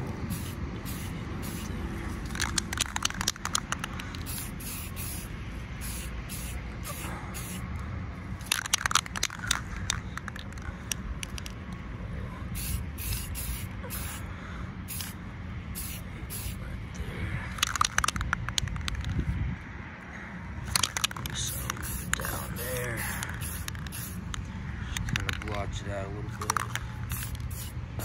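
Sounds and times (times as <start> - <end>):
spray can hissing: 0.2 - 7.6, 8.4 - 11.5, 12.6 - 14.2, 14.9 - 15.2, 15.8 - 16.6, 17.6 - 19.0, 20.7 - 24.4, 26.4 - 27.8
rapid clicking: 2.2 - 4.6, 8.4 - 11.6, 17.6 - 19.2, 20.7 - 24.4, 26.3 - 27.7.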